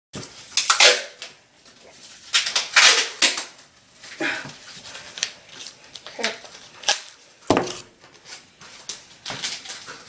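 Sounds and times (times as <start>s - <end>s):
duct tape ripping off roll: 0.2s - 1.4s, 2.2s - 3.6s, 5.2s - 7.9s.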